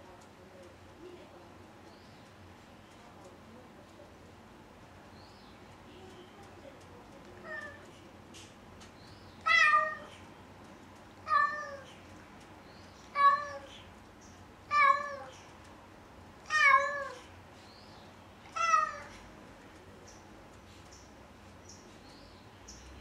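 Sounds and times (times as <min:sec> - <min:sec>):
cat meowing: 0:07.4 - 0:07.9, 0:09.4 - 0:10.2, 0:11.2 - 0:12.0, 0:13.1 - 0:13.8, 0:14.7 - 0:15.4, 0:16.4 - 0:17.3, 0:18.5 - 0:19.2.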